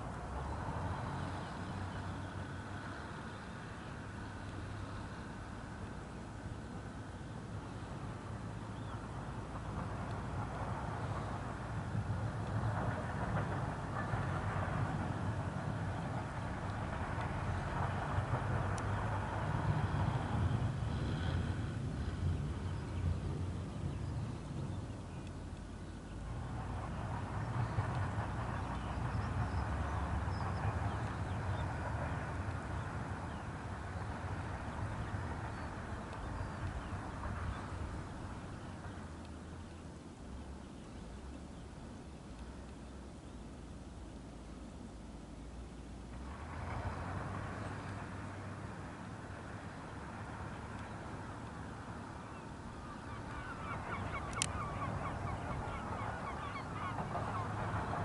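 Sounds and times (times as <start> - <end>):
distant jet engines: 0.0 - 58.0
bird honking calls: 52.9 - 57.6.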